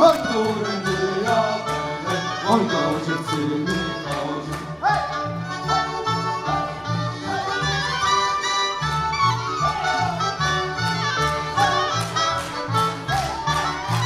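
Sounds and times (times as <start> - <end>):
folk band playing dance music: 0.0 - 14.0.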